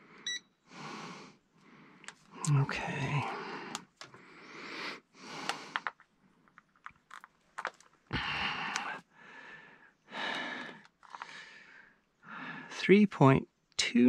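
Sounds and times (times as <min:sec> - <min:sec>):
person breathing: 0:00.0 - 0:06.0, 0:08.1 - 0:12.7
test probes clicking: 0:02.0 - 0:02.3, 0:03.6 - 0:04.2, 0:05.3 - 0:08.0, 0:08.6 - 0:09.0.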